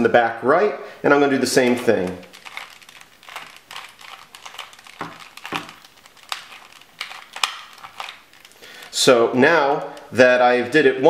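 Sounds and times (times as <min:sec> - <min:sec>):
puzzle cube plastic clicks: 0:01.6 - 0:10.2.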